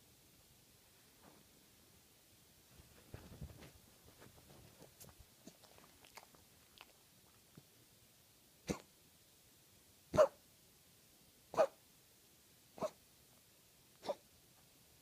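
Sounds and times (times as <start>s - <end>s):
dog coughing: 8.6s - 8.9s, 10.2s - 10.4s, 14.0s - 14.2s.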